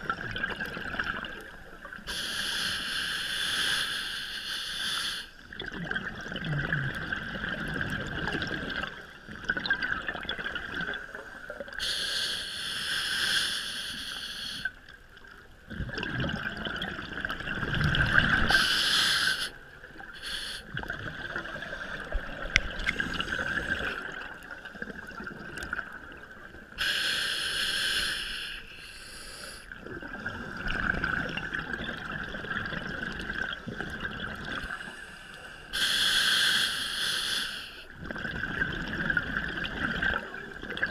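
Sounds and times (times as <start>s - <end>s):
exhaled air bubbling: 0.0s - 2.3s, 5.4s - 11.9s, 14.6s - 26.9s, 29.7s - 35.0s, 37.8s - 40.9s
regulator inhale hiss: 2.1s - 5.4s, 11.4s - 14.8s, 18.5s - 19.6s, 20.2s - 20.7s, 26.8s - 29.8s, 34.8s - 37.9s.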